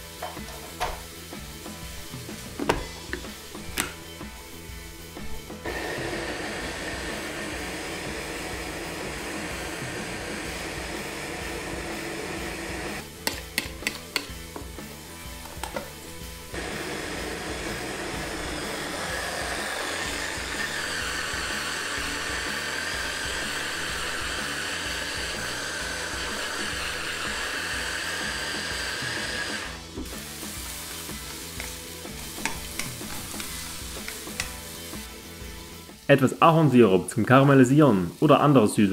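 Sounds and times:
onions sizzling in a frying pan: 0.0 - 38.9
electric chopper whining: 5.0 - 13.1, 16.5 - 30.0.

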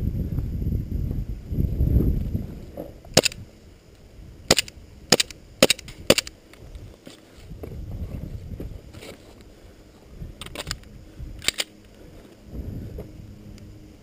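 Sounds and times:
low rumbling noise: 0.0 - 14.0
airsoft pistol cracks: 3.2 - 3.4, 4.5 - 6.4.

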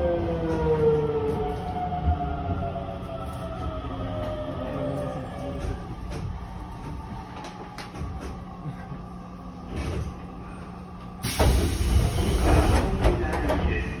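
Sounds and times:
train running rumble: 0.3 - 14.0
train doors sliding open: 11.1 - 14.0.

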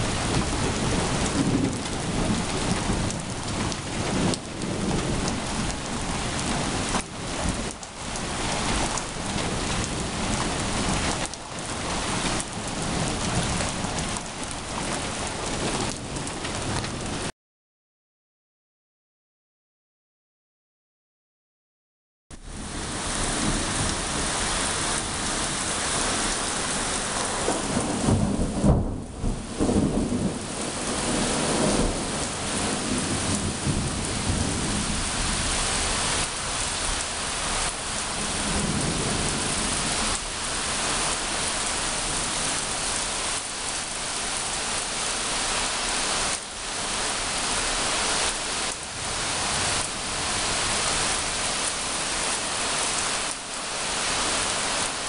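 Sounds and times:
heavy rain on pavement: 0.0 - 17.3, 22.4 - 55.0
thunder rumbling: 0.0 - 17.3, 22.5 - 44.9.

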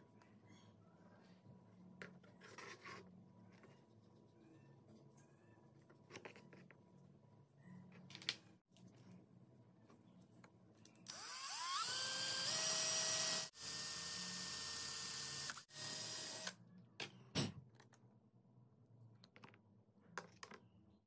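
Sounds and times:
cordless drill boring wood: 11.1 - 16.6.

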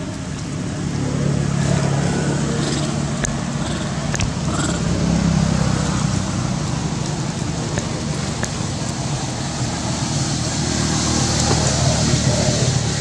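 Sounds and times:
noisy rumble: 0.0 - 13.0
faint sharp clicks: 4.1 - 4.4.

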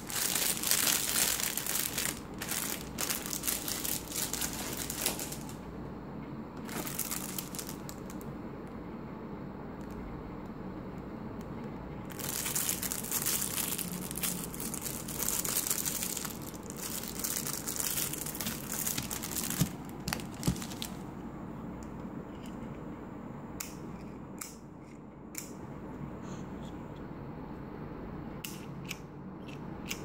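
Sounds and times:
plastic sleeve crinkling and tearing: 0.0 - 5.6, 6.6 - 8.2, 12.1 - 21.0.

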